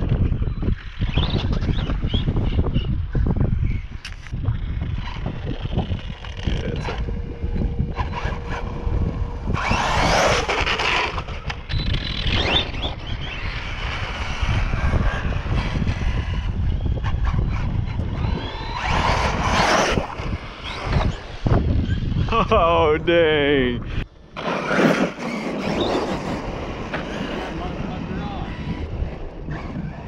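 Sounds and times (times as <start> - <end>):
wind rumble on microphone: 0.0 - 30.0
electric motors whining: 4.6 - 23.1, 23.8 - 30.0
tyres scrubbing on asphalt: 9.6 - 11.3, 24.4 - 28.7.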